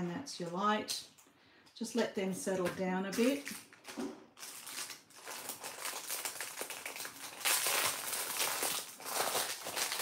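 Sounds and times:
plastic packaging crinkling: 3.1 - 10.0.

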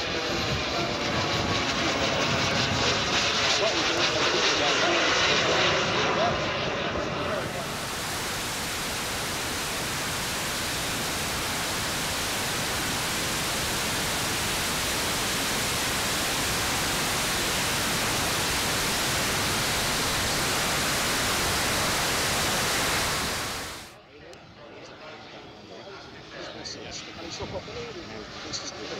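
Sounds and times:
wind rushing over microphone: 7.0 - 23.9.

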